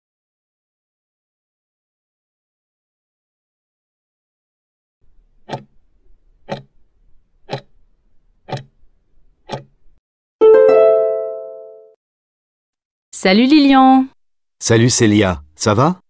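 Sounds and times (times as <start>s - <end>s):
timer ticking: 5.4s - 5.7s, 6.5s - 6.7s, 7.5s - 7.7s, 8.5s - 8.7s, 9.5s - 9.7s
multi-tone chime: 10.4s - 12.0s.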